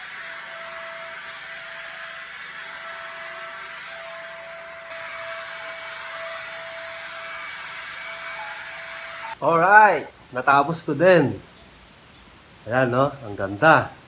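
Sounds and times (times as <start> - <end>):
electric spray gun hissing: 0.0 - 9.4.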